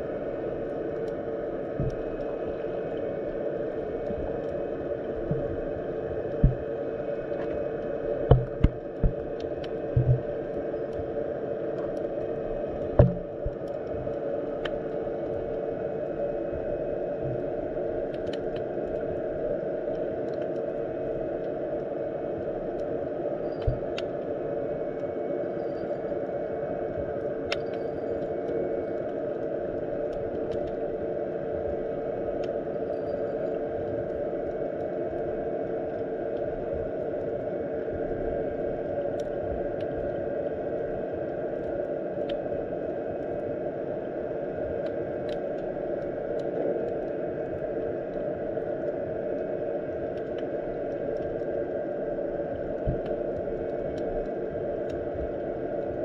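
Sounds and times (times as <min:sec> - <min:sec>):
underwater rushing noise: 0:00.0 - 0:22.7, 0:33.6 - 0:56.0
faint underwater clicks: 0:00.6 - 0:43.6, 0:44.4 - 0:56.0.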